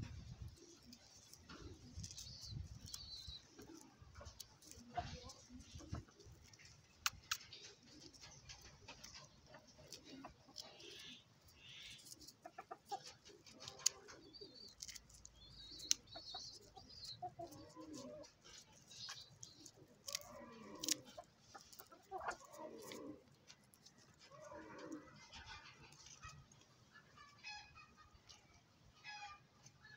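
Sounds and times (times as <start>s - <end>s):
chickens clucking: 0.0s - 29.9s.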